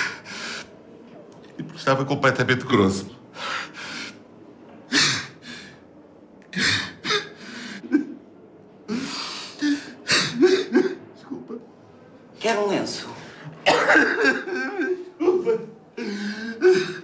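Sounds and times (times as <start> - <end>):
man sobbing: 9.6 - 11.6, 13.8 - 17.0.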